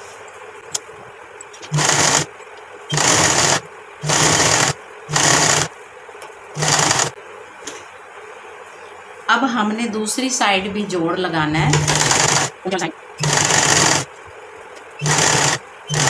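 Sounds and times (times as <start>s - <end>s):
sewing machine stitching: 1.7s - 2.3s, 2.9s - 5.7s, 6.6s - 7.2s, 11.8s - 12.5s, 13.2s - 14.1s, 15.0s - 16.0s.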